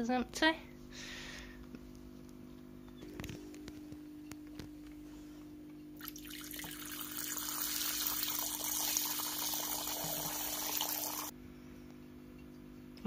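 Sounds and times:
water trickling into metal dish: 6.0 - 11.3.

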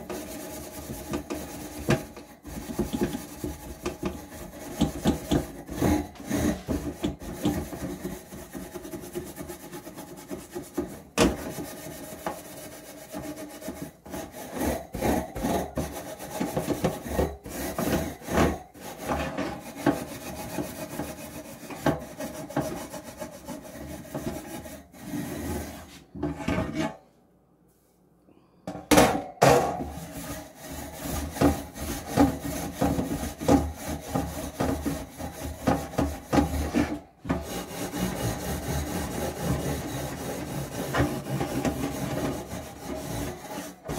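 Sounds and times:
steel wool scrubbing metal rack: 0.0 - 27.0, 29.8 - 43.9.

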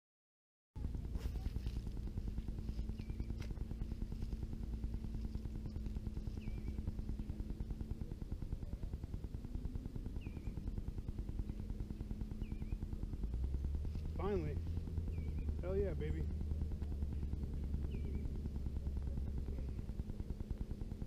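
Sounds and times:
bird chirping: 2.7 - 3.9, 5.6 - 7.4, 10.1 - 10.8, 11.4 - 13.0, 14.2 - 15.7, 17.6 - 18.6.

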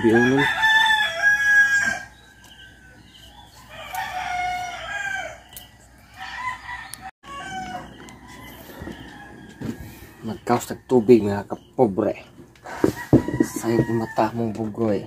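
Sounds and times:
rooster crowing: 0.0 - 2.2, 3.6 - 11.0, 12.7 - 14.5.

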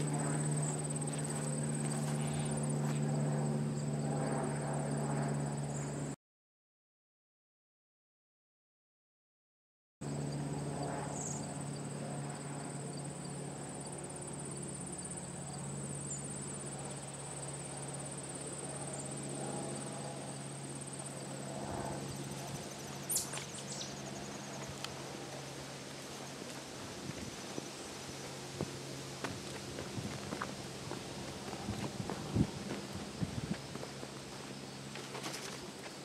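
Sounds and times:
low steady hum: 0.0 - 6.2, 10.0 - 36.0
insect trilling: 22.1 - 24.6.

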